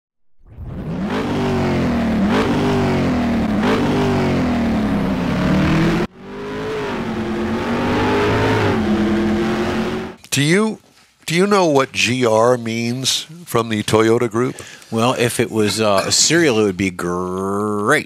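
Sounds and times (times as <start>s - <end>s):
car engine accelerating: 0.5s - 10.2s.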